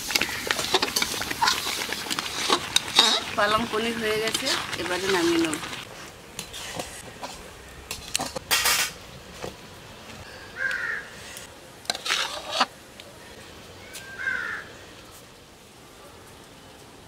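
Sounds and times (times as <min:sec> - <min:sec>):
scraping and knocking on steel pot: 0:00.1 - 0:05.8
crow cawing: 0:10.5 - 0:11.2, 0:14.1 - 0:14.8.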